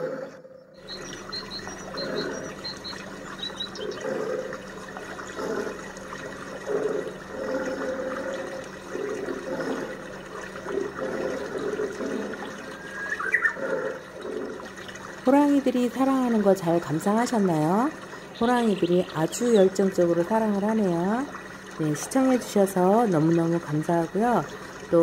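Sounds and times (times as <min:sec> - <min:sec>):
tigers growling: 0:00.0 - 0:00.6, 0:01.9 - 0:02.6, 0:03.8 - 0:12.7, 0:13.6 - 0:14.8.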